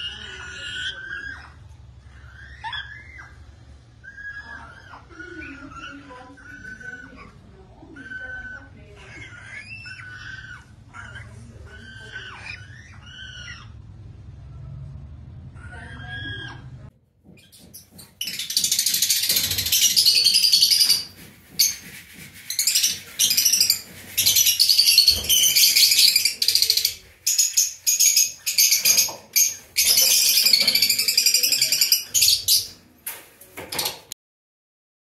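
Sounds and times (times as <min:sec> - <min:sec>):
canary singing trills: 0:17.4 - 0:32.8.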